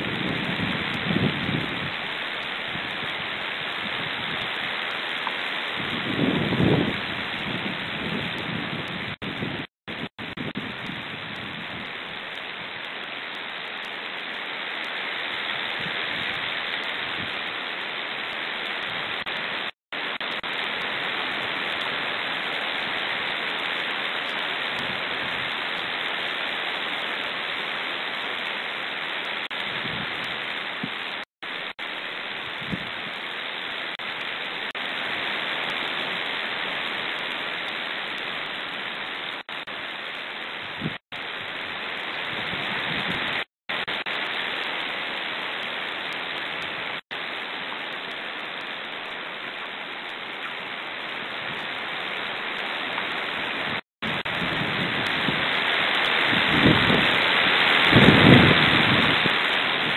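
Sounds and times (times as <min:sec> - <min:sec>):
wind hissing on microphone: 0:00.0 - 0:12.8, 0:15.4 - 0:17.5, 0:24.7 - 0:25.6, 0:29.5 - 0:31.1, 0:32.4 - 0:33.2, 0:40.6 - 0:44.2, 0:53.3 - 0:59.9.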